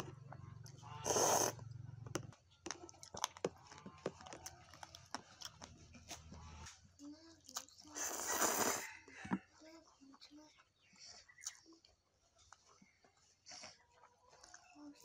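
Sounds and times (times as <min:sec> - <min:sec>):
wet mouth clicks and chewing: 0:02.2 - 0:06.8, 0:07.4 - 0:08.9, 0:11.1 - 0:12.8
crunching bite: 0:02.7 - 0:06.4.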